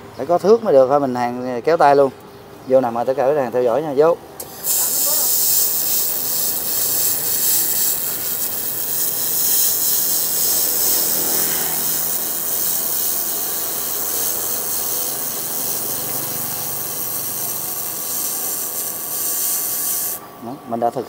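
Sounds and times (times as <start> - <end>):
laser welder hissing: 4.4 - 20.3.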